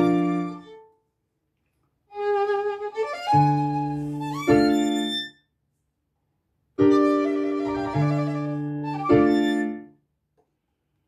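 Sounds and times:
solo violin bowing: 2.1s - 5.4s, 6.8s - 9.8s.

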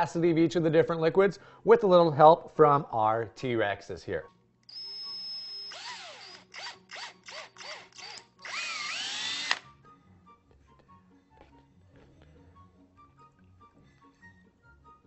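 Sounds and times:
faint background music: 0.0s - 15.0s
cordless drill whining: 4.7s - 9.7s.

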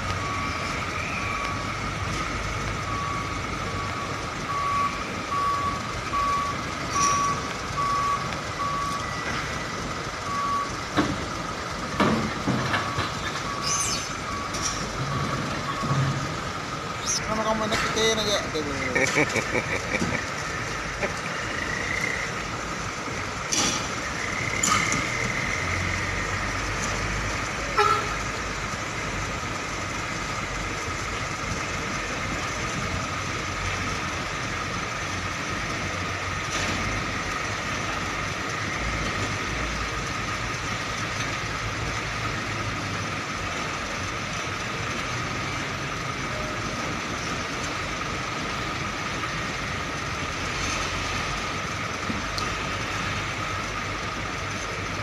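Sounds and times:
diesel truck engine rumble: 0.0s - 55.0s
truck horn toot: 27.7s - 28.3s.

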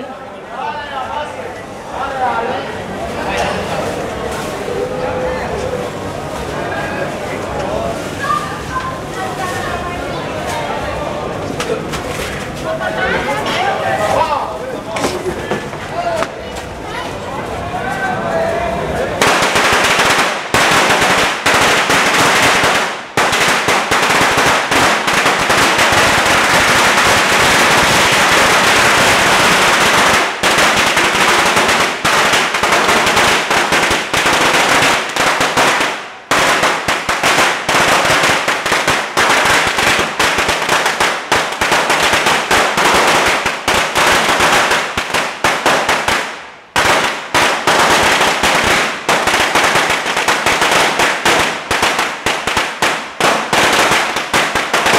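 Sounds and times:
firecrackers crackling: 19.2s - 54.9s.

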